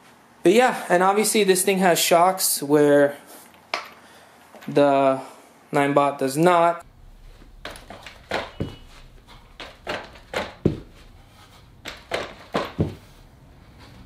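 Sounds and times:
scooter suspension thunks: 7.5s - 11.1s, 11.8s - 13.2s.

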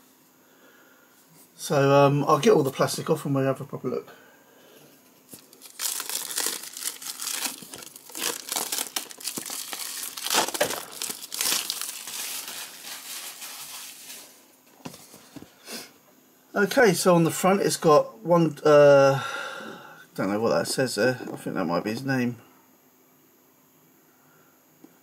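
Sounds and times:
plastic wrap tearing and crinkling: 5.3s - 14.5s.

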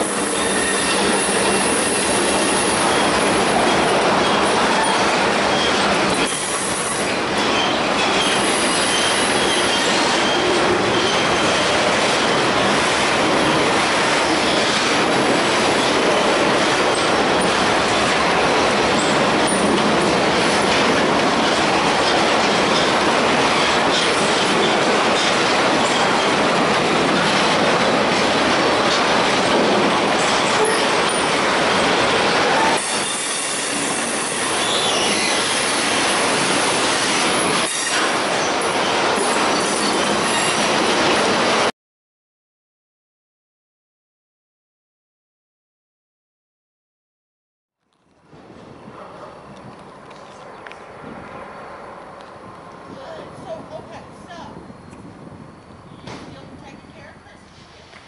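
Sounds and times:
faint high wheel squeal: 0.0s - 3.2s, 4.2s - 11.4s, 32.8s - 35.8s
train wheels rolling on rails: 0.0s - 41.7s, 48.1s - 58.0s.

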